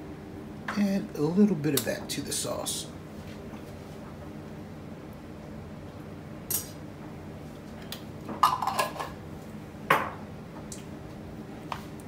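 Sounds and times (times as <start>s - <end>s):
kitchen utensils clinking: 8.4s - 9.2s.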